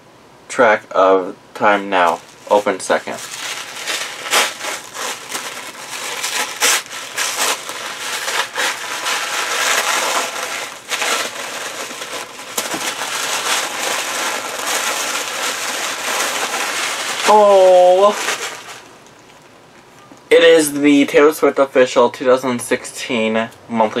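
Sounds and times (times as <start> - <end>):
tissue paper rustling: 1.9 - 19.1.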